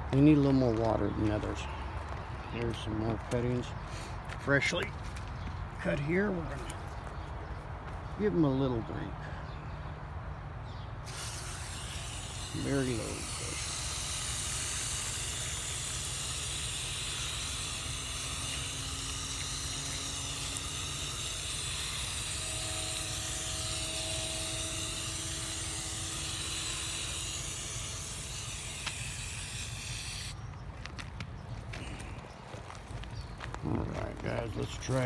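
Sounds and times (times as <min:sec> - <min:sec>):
garden hose spraying onto soil: 0:11.0 - 0:30.4.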